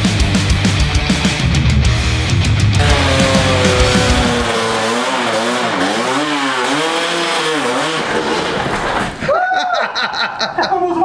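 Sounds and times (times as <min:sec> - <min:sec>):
higher wavering pitched sound: 0:02.8 - 0:05.6
motorcycle engine revving: 0:02.8 - 0:08.6.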